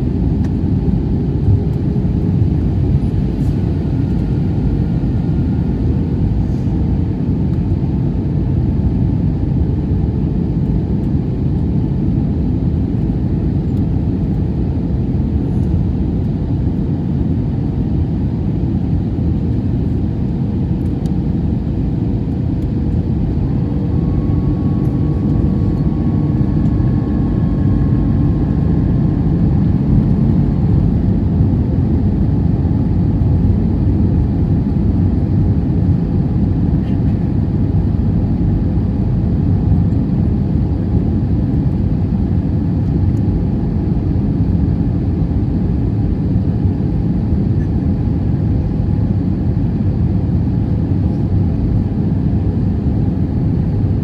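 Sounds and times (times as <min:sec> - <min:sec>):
airplane cabin rumble: 0:00.0 - 0:54.0
faint whine: 0:20.6 - 0:44.5.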